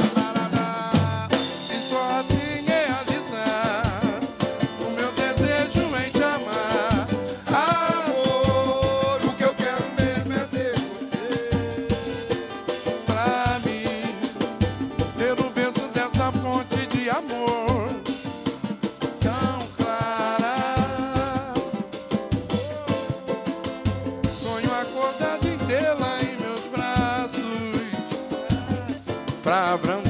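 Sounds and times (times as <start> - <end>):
drum kit and cymbals: 0.0 - 30.0
strummed string instruments: 21.4 - 30.0.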